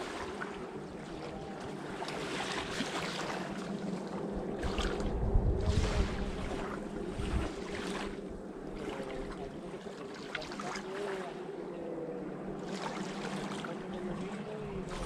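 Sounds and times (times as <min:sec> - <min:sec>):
small waves lapping on sand: 0:00.0 - 0:15.0
steady low hum: 0:00.0 - 0:15.0.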